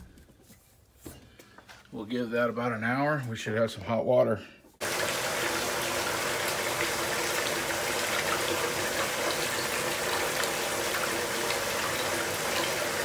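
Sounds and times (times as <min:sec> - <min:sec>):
water running into bathtub: 0:04.8 - 0:13.0.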